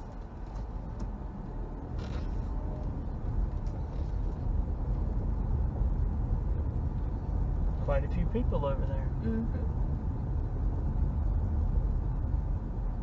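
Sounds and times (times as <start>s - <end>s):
car rumbling on gravel: 1.8s - 5.8s.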